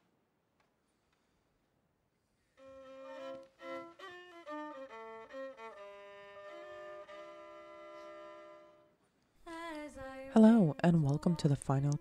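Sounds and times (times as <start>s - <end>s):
violin melody: 2.6s - 12.0s.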